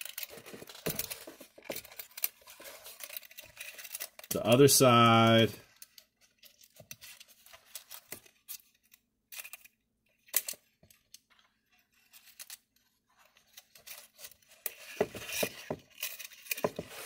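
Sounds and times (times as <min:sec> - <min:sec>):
wire clicking and scratching: 0:00.0 - 0:04.4.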